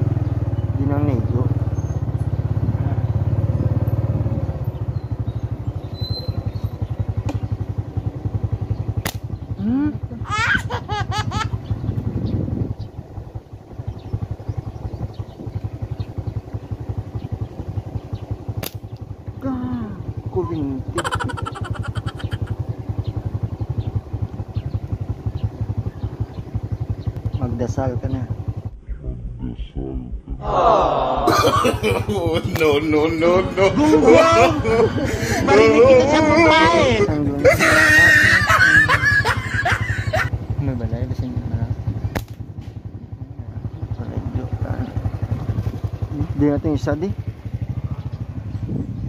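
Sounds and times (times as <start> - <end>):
small engine puttering: 0.0 - 28.7, 31.3 - 49.0
sharp click: 9.0 - 9.3, 18.6 - 19.1, 42.1 - 42.8.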